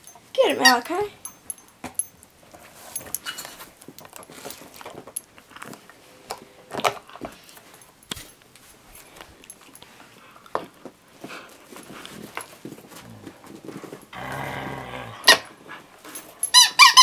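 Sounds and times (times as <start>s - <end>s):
metal collar tags jingling: 0.0s - 5.6s, 16.1s - 17.0s.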